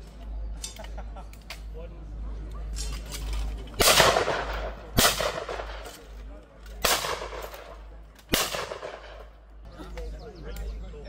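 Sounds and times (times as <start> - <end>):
shotgun shots: 3.8 - 6.0, 6.8 - 9.3.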